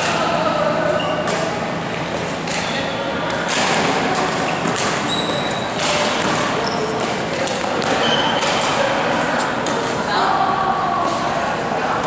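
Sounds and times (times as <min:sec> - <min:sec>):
shoes squeaking on court floor: 0:00.9 - 0:03.1, 0:04.4 - 0:09.6
racket hitting shuttlecock: 0:01.2 - 0:10.0.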